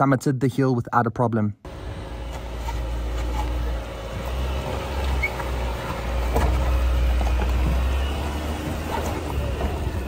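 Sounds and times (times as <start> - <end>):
engine running low: 1.7 - 10.0.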